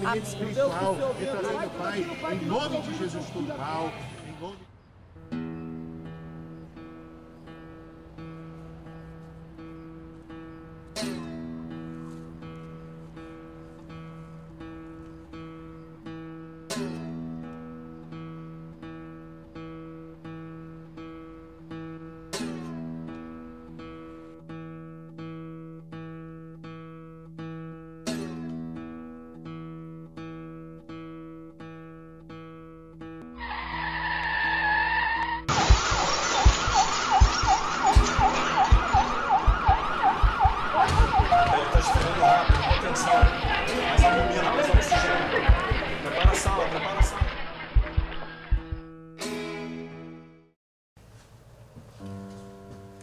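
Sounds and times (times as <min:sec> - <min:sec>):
acoustic guitar notes picked slowly: 0:05.2 - 0:33.4, 0:37.9 - 0:47.8, 0:48.5 - 0:50.5, 0:51.8 - 0:53.0
emergency siren yelping: 0:33.4 - 0:45.4
deep thumps: 0:35.6 - 0:49.0.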